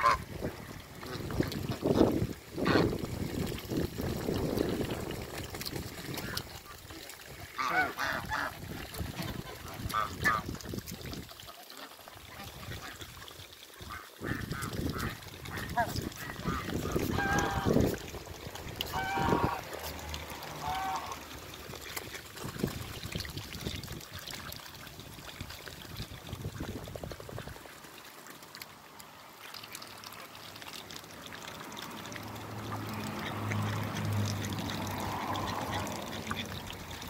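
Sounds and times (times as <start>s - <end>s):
ducks honking quacks: 0.0s - 0.3s, 2.6s - 3.0s, 7.5s - 8.6s, 9.2s - 10.5s, 13.8s - 18.0s, 18.8s - 21.9s, 32.6s - 36.8s
bills splashing in water: 0.0s - 37.0s.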